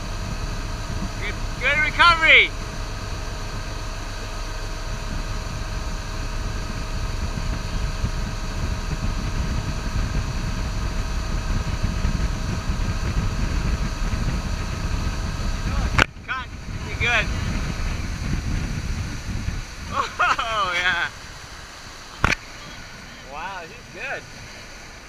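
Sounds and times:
motorboat engine running: 0:00.0 - 0:25.0
rush of boat wake: 0:00.0 - 0:25.0.

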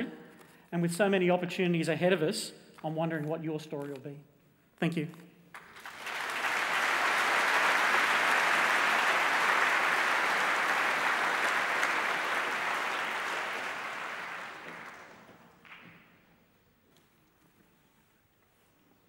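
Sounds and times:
large audience applauding: 0:05.5 - 0:15.9.

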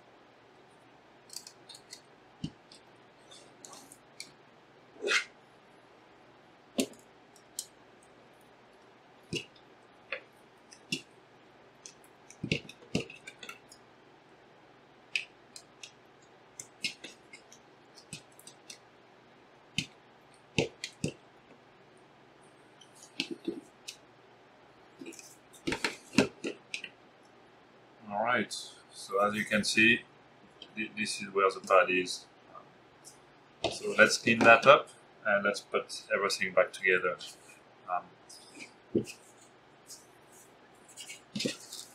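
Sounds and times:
small plastic clicks and knocks: 0:11.8 - 0:13.8, 0:19.8 - 0:21.2.

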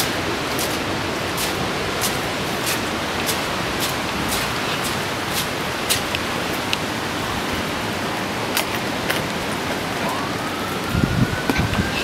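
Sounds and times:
raindrops ticking: 0:00.0 - 0:07.0
rushing wind and rain: 0:00.0 - 0:12.0
wind buffeting microphone: 0:00.0 - 0:12.0
distant siren: 0:07.0 - 0:12.0.

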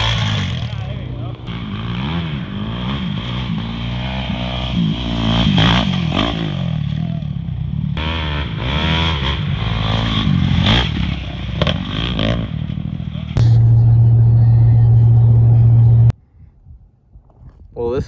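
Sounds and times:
dirt bike engine revving: 0:00.0 - 0:07.0, 0:07.7 - 0:14.0.

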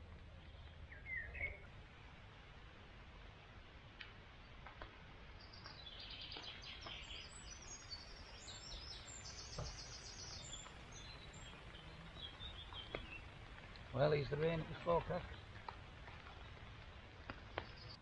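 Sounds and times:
songbird trilling: 0:00.4 - 0:01.7, 0:05.4 - 0:13.4.

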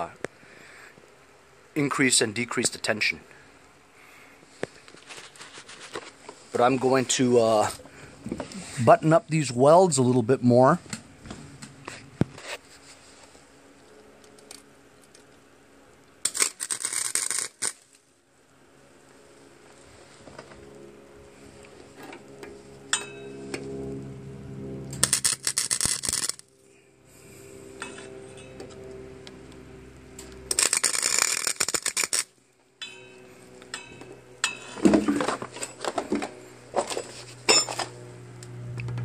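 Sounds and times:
welder arc crackling: 0:16.0 - 0:18.0, 0:24.8 - 0:26.6, 0:27.8 - 0:32.4
welder humming: 0:16.2 - 0:18.0, 0:19.6 - 0:39.0.

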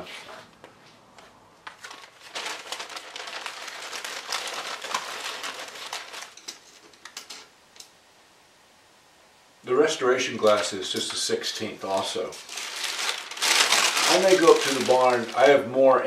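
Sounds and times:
paper wrapping rustling: 0:01.6 - 0:07.5, 0:10.3 - 0:15.8.

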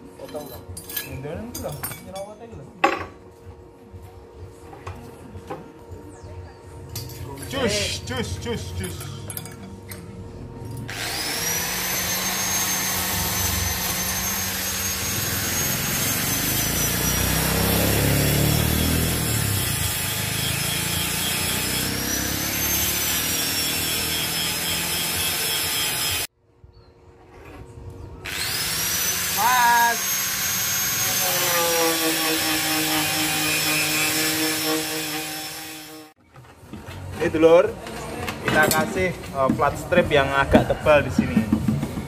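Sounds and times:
angle grinder cutting steel: 0:10.9 - 0:26.3, 0:28.3 - 0:36.2.

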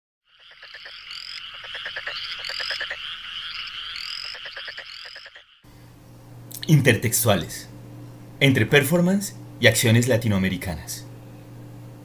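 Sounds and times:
frogs croaking: 0:00.2 - 0:05.6.

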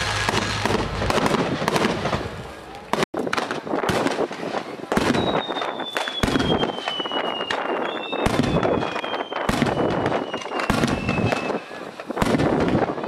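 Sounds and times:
firework shells bursting: 0:00.0 - 0:02.3
firework whistle sliding down: 0:05.2 - 0:11.8.

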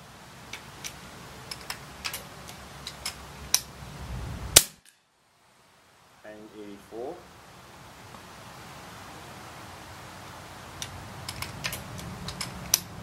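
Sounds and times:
air rifle shot: 0:04.6 - 0:04.9.

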